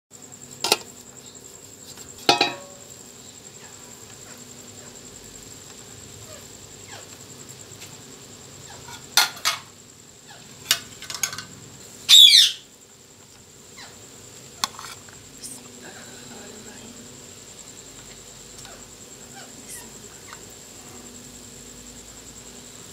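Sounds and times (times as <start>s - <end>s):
faint high whine: 0.2s - 22.9s
steel cookware clinking: 2.2s - 2.9s, 10.7s - 11.5s.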